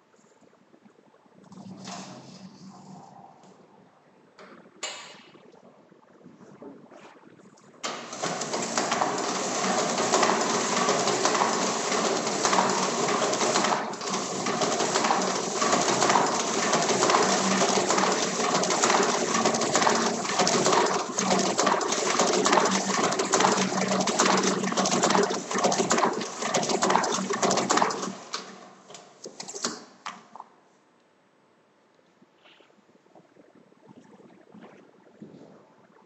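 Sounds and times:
stencil duplicator rattling: 7.9 - 28.1.

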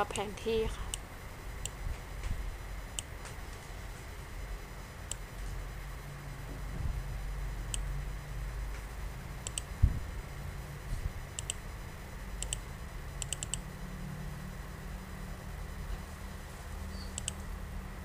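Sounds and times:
low steady hum: 0.0 - 18.0
computer mouse buttons clicking: 9.4 - 9.7, 11.4 - 11.6, 12.4 - 12.6, 13.2 - 13.6, 17.1 - 17.4.

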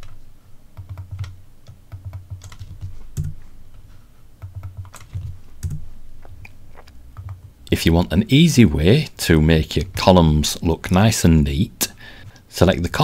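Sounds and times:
typing on computer keyboard: 0.8 - 3.4, 4.4 - 5.8, 7.2 - 7.5.

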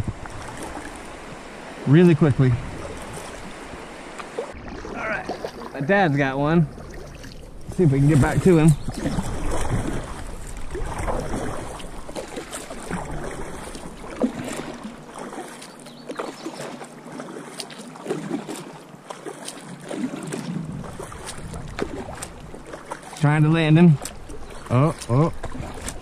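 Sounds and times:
wind rumble on microphone: 0.0 - 1.5, 2.2 - 3.9, 6.6 - 12.1, 20.3 - 22.7
paddle strokes in water: 0.0 - 26.0
water splashing and dripping: 0.0 - 26.0.

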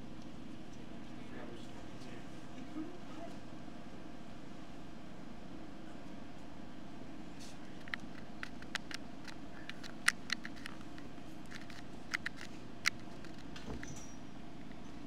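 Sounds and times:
room hum: 0.0 - 15.0
small clicks and rustles: 7.4 - 15.0.

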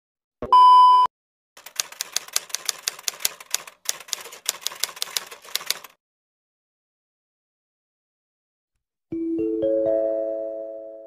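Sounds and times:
typewriter key clacks: 1.6 - 6.0.

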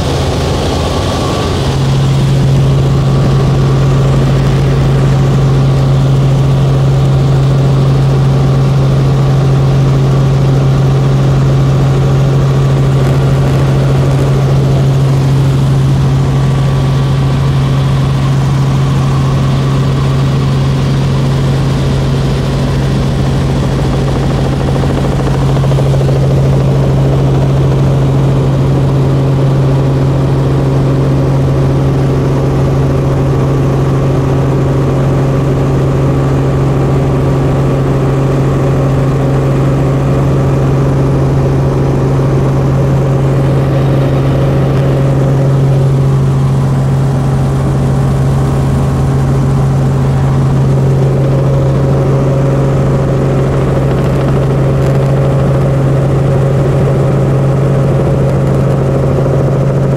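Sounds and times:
aircraft engine drone: 0.0 - 59.9.

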